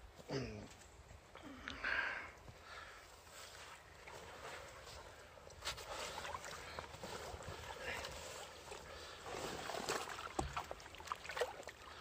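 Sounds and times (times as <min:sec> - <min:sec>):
water sloshing and lapping: 0:03.0 - 0:12.0
small splashes: 0:03.8 - 0:12.0.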